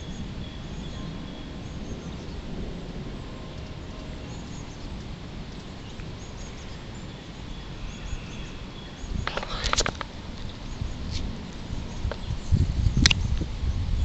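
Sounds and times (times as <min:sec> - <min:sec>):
faint bird chirps: 0:00.0 - 0:10.0.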